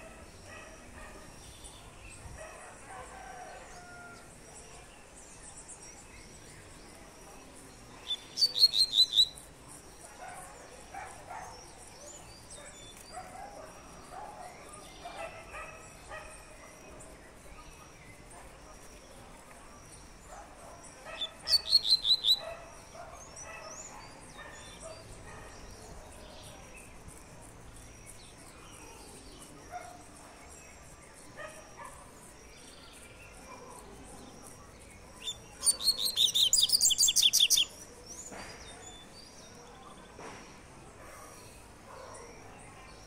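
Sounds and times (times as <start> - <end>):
faint bird chirps: 3.8 - 27.2, 27.8 - 40.4.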